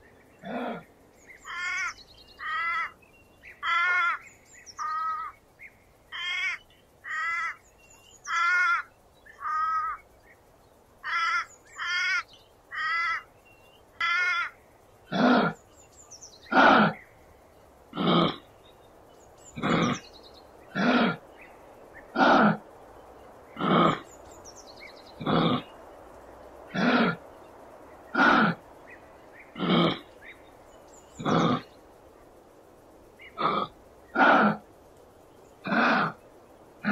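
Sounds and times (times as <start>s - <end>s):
animal calls: 14.0s - 15.6s, 16.4s - 17.1s, 17.9s - 18.6s, 19.5s - 20.1s, 20.7s - 21.3s, 22.0s - 22.7s, 23.5s - 24.2s, 25.0s - 25.8s, 26.7s - 27.4s, 28.0s - 30.4s, 31.1s - 31.8s, 33.2s - 34.7s, 35.6s - 36.2s.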